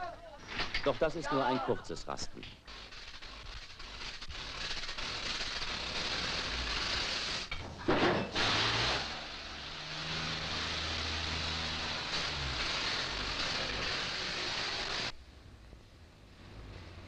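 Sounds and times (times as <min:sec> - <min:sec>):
loud crash: 0:04.5 - 0:15.1.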